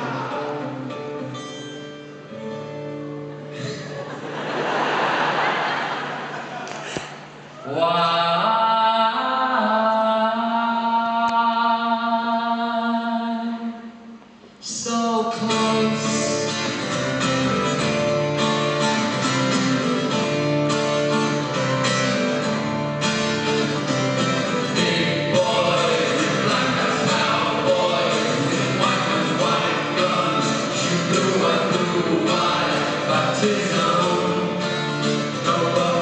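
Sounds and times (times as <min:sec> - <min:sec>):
acoustic guitar: 0:00.0 - 0:36.0.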